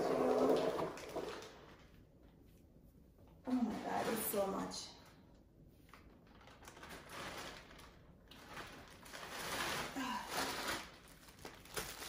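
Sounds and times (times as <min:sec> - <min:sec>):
plastic bags rustling: 0:00.6 - 0:02.3, 0:05.8 - 0:12.0.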